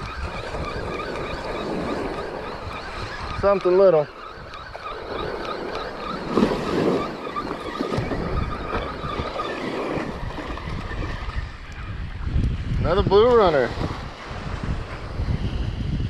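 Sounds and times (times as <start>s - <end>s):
wind on microphone: 0.0s - 16.0s
waves washing onto sand: 4.8s - 11.5s, 12.4s - 16.0s.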